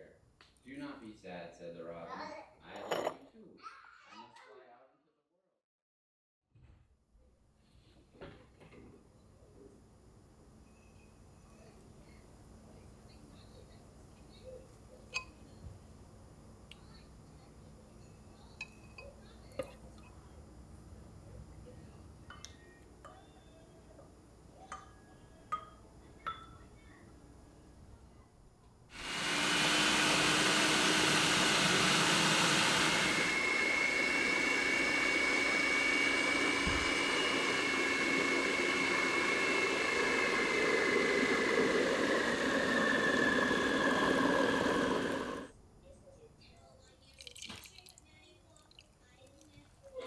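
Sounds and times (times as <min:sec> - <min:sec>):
glass and utensils clinking: 0:02.7 - 0:03.2
food processor motor whining: 0:29.0 - 0:45.5.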